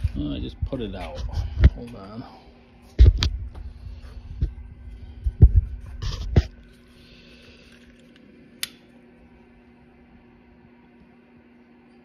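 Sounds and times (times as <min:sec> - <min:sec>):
steady low hum: 0:00.0 - 0:12.0
lighter sparking click: 0:08.6 - 0:08.8.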